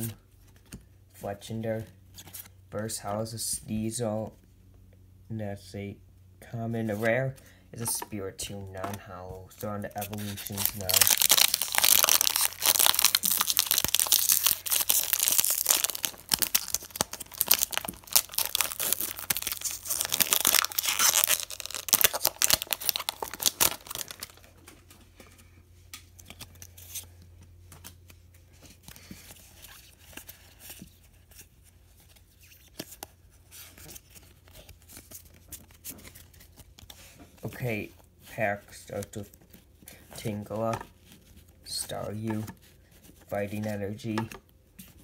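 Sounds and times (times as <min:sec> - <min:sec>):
trading cards being handled: 0:07.8 - 0:37.6
foil wrapper crinkling: 0:10.0 - 0:24.6.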